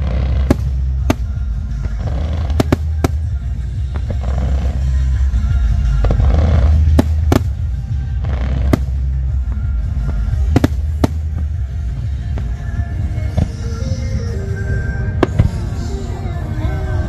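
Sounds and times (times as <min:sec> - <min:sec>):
sharp firework cracks: 0:00.0 - 0:04.8, 0:06.0 - 0:09.2, 0:10.1 - 0:11.6
fireworks booming: 0:00.0 - 0:04.9, 0:05.7 - 0:12.6
music playing: 0:00.0 - 0:17.0.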